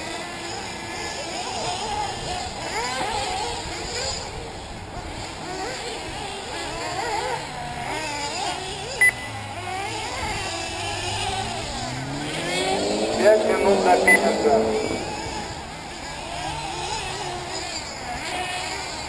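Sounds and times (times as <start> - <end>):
model car engines whining and revving: 0.0 - 19.0
short electronic beep: 9.0 - 9.5, 13.4 - 15.2.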